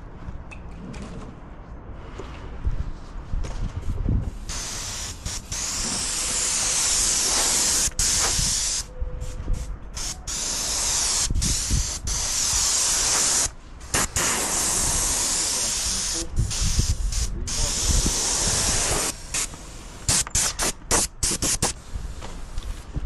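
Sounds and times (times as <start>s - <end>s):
paint spray gun hissing: 4.4s - 8.9s, 10.0s - 21.8s.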